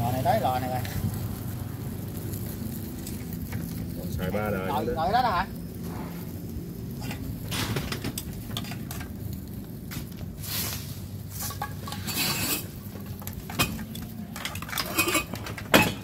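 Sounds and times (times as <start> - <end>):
objects clattering and knocking: 7.0 - 9.2, 11.3 - 16.0.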